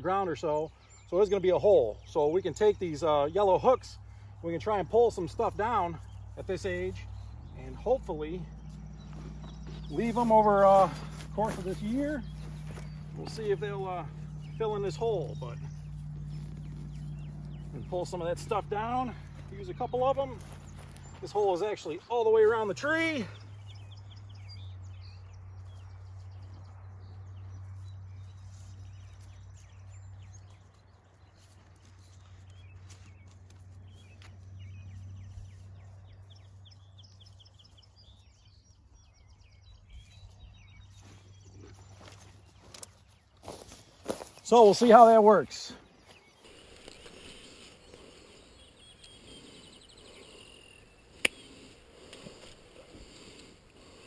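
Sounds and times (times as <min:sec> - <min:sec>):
small birds chirping: 0:00.0 - 0:54.0
steady low hum: 0:00.7 - 0:44.5, 0:45.2 - 0:54.0
fir branches rustling: 0:08.5 - 0:17.9, 0:40.9 - 0:54.0.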